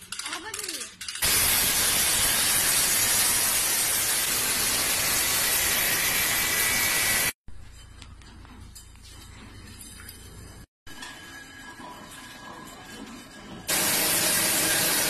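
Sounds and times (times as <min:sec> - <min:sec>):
angle grinder cutting steel: 0:01.2 - 0:07.4, 0:13.7 - 0:15.0.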